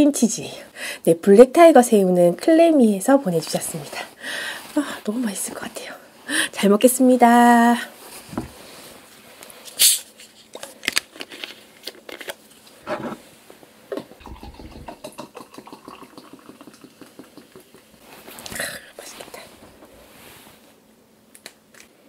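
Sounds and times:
soda fizzing: 14.1 - 18.0
soda pouring into glass: 14.2 - 17.9.

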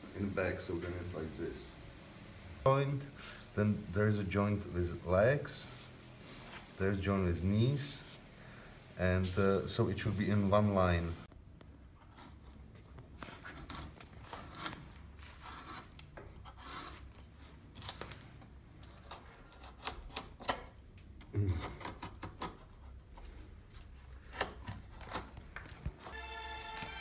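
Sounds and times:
knife scraping wood: 13.4 - 17.2.

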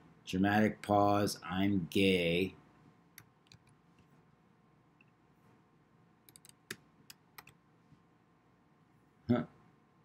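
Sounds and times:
keyboard typing: 6.2 - 7.6.

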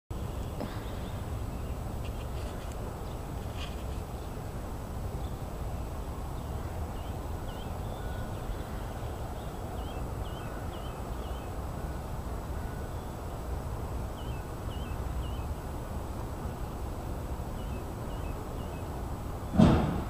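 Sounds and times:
low outdoor rumble: 0.1 - 20.0
bird chirping: 5.2 - 12.0, 14.1 - 15.7, 17.6 - 19.6.

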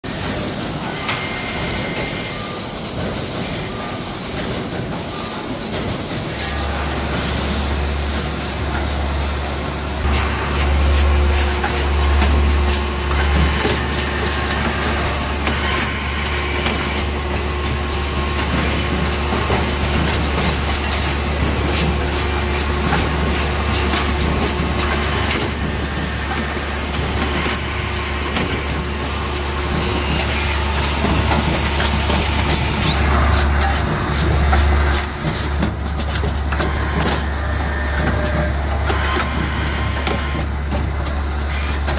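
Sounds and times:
machine low hum: 7.7 - 40.7.

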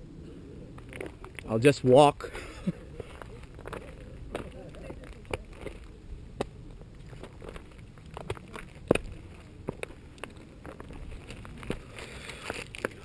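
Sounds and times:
wind rumble on microphone: 0.0 - 13.0
footsteps on rocky ground: 0.7 - 13.0.

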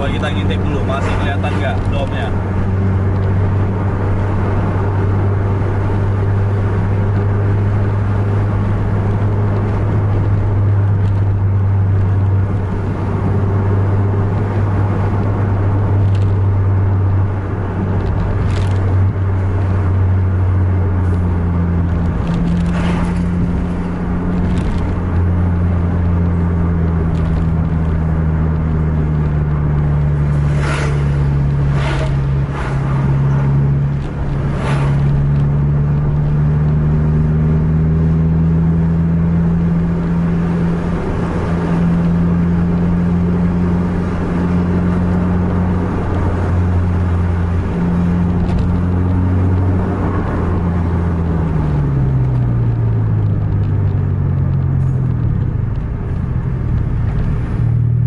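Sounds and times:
truck passing whooshes: 0.0 - 39.1
car engine drone: 0.0 - 58.0
road noise: 0.0 - 58.0.

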